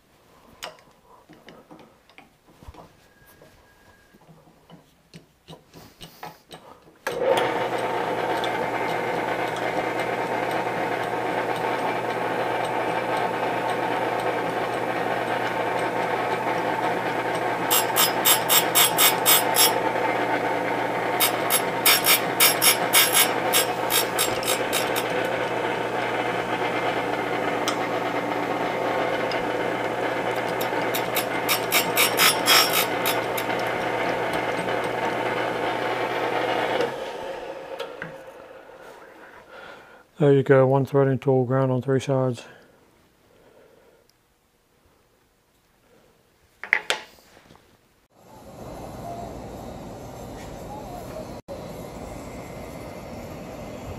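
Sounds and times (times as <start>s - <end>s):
grinder humming: 6.1s - 39.9s, 48.1s - 53.9s
high-pitched grinding: 7.4s - 39.2s.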